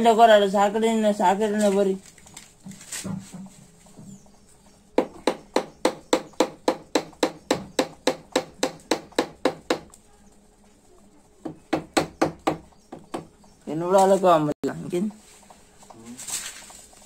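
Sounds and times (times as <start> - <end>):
hand hammer tapping: 5.0 - 10.0, 11.4 - 13.3.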